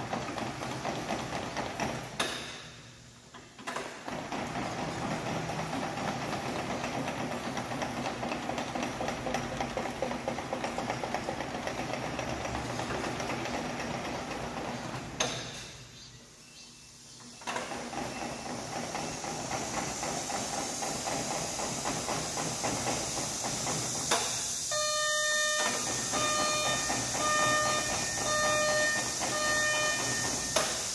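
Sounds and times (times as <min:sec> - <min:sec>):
warning beeper: 0:24.7 - 0:30.6.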